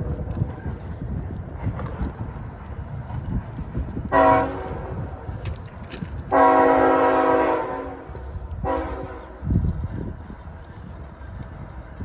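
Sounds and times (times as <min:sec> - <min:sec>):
low rumble: 0:00.0 - 0:12.0
locomotive air horn blasts: 0:04.1 - 0:05.0, 0:06.3 - 0:09.4.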